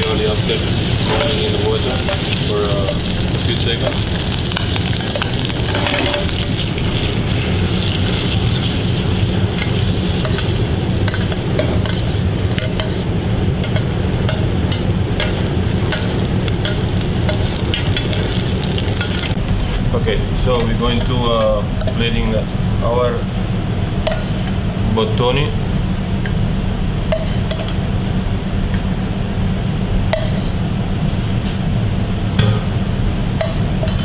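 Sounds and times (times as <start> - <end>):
butter sizzling: 0.0 - 19.4
steady low hum: 0.0 - 34.0.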